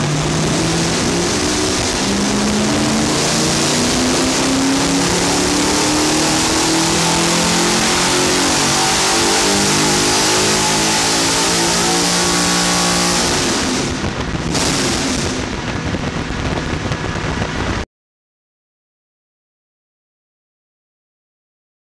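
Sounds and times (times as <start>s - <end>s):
car engine revving on a dyno: 0.0s - 15.6s.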